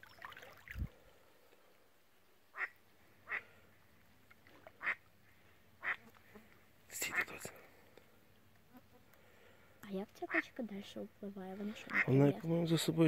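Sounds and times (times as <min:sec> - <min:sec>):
duck quacking: 0:11.8 - 0:12.2.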